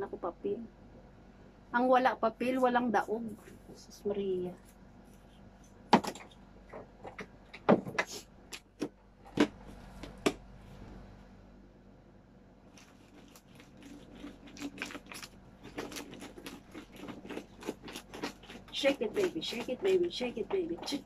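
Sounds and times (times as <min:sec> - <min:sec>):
plastic container clicks and knocks: 0:05.9 - 0:08.1
paper slips rattling in plastic container: 0:12.8 - 0:21.0.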